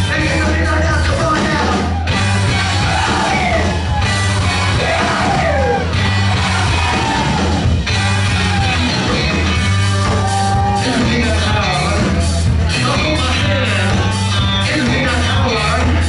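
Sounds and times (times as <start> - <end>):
man yelling singing: 0.0 - 3.9, 4.5 - 7.3, 10.3 - 16.0
bass line: 0.0 - 16.0
drums: 0.0 - 16.0.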